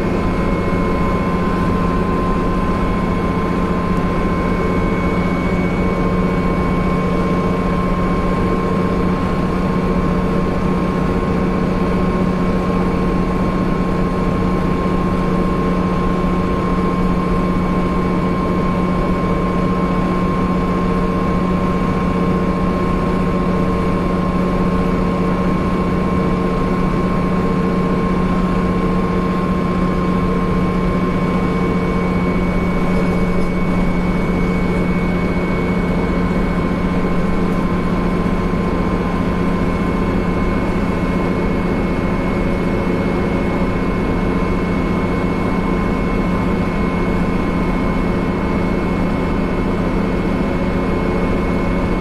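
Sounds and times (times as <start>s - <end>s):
bus engine drone: 0.0s - 52.0s
high whine: 23.3s - 52.0s.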